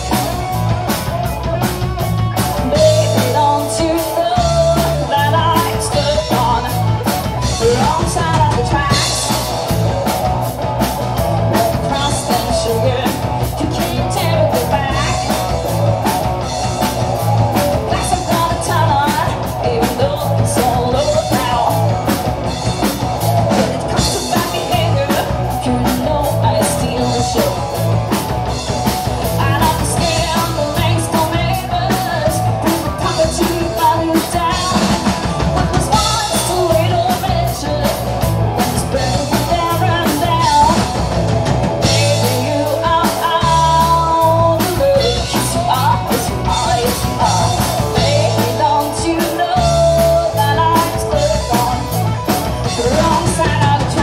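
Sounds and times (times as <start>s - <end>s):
drum kit beat: 0.0s - 54.0s
electric guitars: 0.0s - 54.0s
woman singing: 2.5s - 9.8s, 11.5s - 16.2s, 17.6s - 22.2s, 23.5s - 27.8s, 29.2s - 41.0s, 41.8s - 54.0s.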